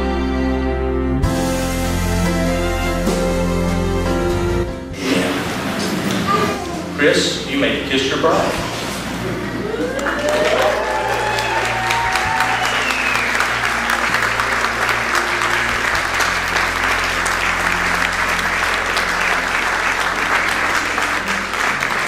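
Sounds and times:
crowd applauding: 0:09.2 - 0:22.0.

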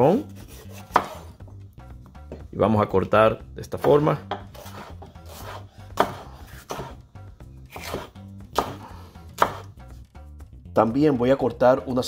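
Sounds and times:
soft background music: 0:00.0 - 0:12.0
knife slicing pepper: 0:00.3 - 0:01.3, 0:03.8 - 0:07.0, 0:07.6 - 0:09.8
knife knocking on wooden board: 0:03.8 - 0:04.5.

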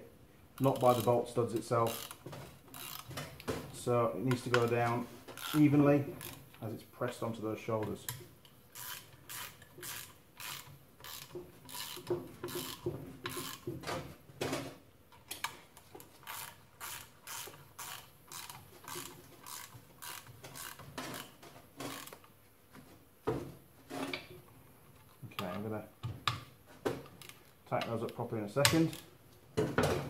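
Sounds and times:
socket ratchet clicking: 0:00.6 - 0:03.2, 0:05.4 - 0:06.4, 0:08.7 - 0:13.6, 0:16.2 - 0:22.3.

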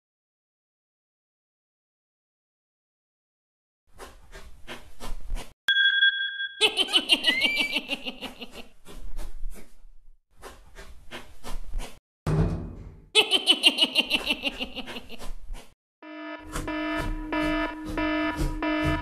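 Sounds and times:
electronic beep: 0:05.7 - 0:06.6, 0:16.4 - 0:19.0
high snickering laugh: 0:06.6 - 0:08.8, 0:13.2 - 0:15.3.

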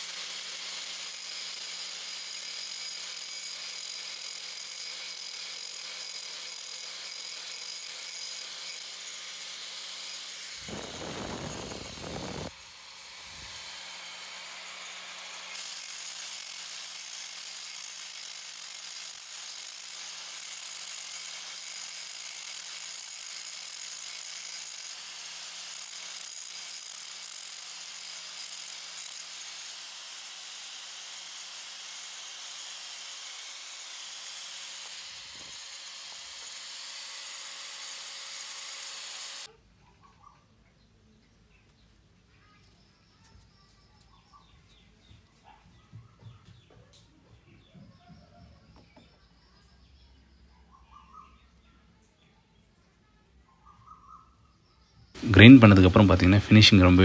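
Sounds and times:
angle grinder grinding steel: 0:03.0 - 0:39.5.

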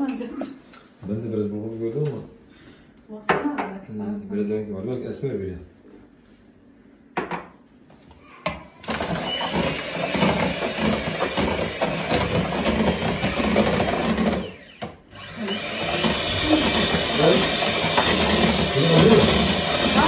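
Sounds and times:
electric hand mixer beating batter: 0:08.8 - 0:20.0.

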